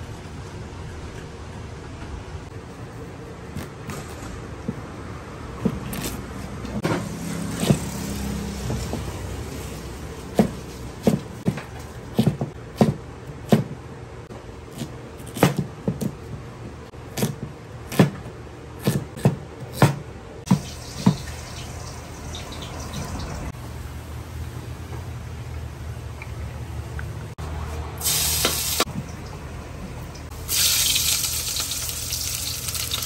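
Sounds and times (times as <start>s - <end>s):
cleaver chopping on wooden board: 10.4s - 13.8s, 17.2s - 20.6s.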